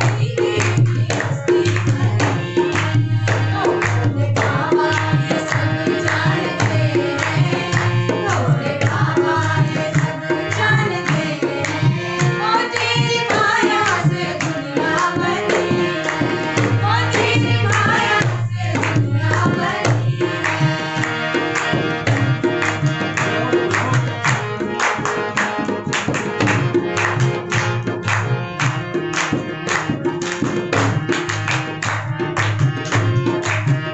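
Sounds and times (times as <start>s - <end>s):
woman singing: 0.0s - 2.4s, 3.4s - 11.6s
voices singing along: 0.0s - 24.2s
dholak drum rhythm: 0.0s - 33.9s
harmonium: 0.0s - 33.9s.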